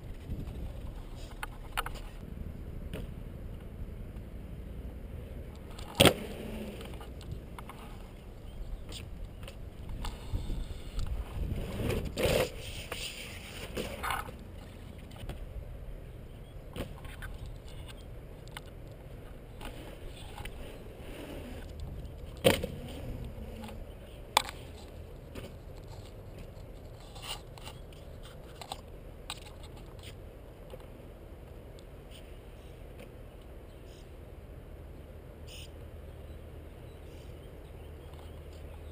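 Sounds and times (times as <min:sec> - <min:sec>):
steady low rumble: 0:00.0 - 0:27.0
skateboard wheels rolling on concrete: 0:00.0 - 0:35.5.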